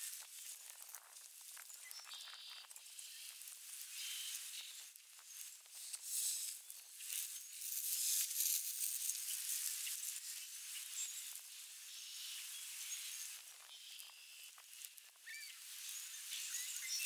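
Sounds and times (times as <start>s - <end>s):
bird tearing at fur in grass: 5.4s - 10.4s.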